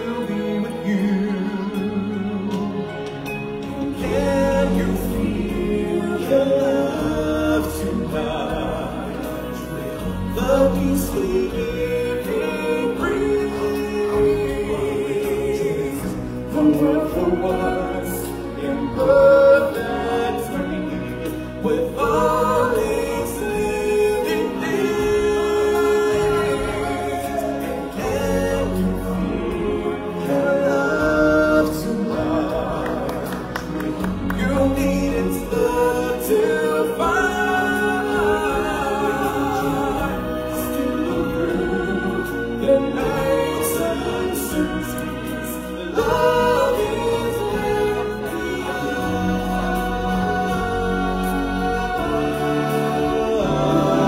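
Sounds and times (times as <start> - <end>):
singers and choir with accompaniment: 0.0 - 54.0.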